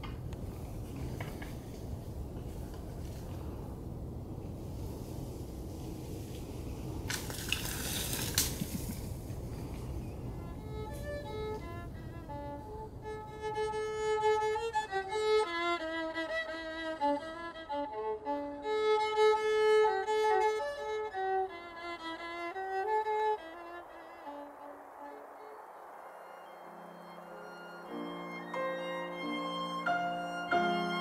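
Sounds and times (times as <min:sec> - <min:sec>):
solo violin slow melody: 0:09.6 - 0:31.0.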